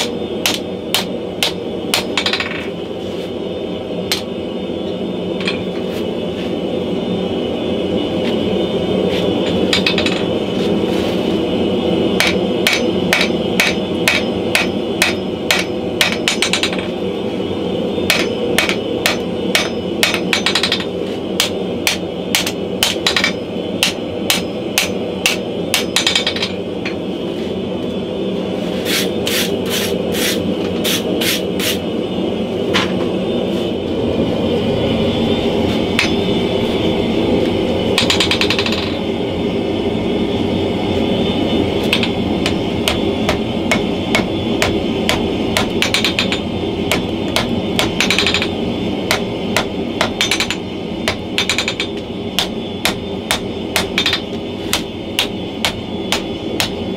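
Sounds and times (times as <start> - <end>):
hammer striking hot steel on anvil: 0.0 - 2.6, 9.6 - 10.3, 12.2 - 16.9, 18.0 - 27.0, 35.9 - 36.2, 38.0 - 39.0, 41.8 - 56.9.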